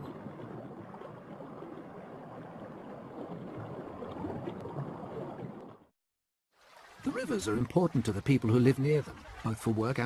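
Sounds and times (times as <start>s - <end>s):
stream water rushing: 6.6s - 10.0s.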